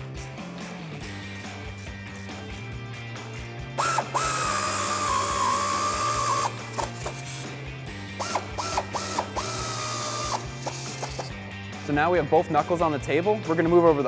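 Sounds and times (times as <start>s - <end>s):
background music: 0.0s - 14.0s
air ratchet whine: 3.4s - 11.4s.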